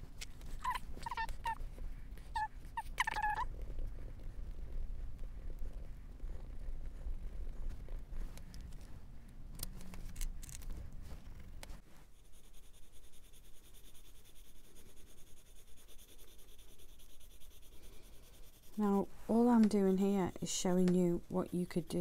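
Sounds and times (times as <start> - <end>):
pencil scratching on paper: 12.0 - 22.0.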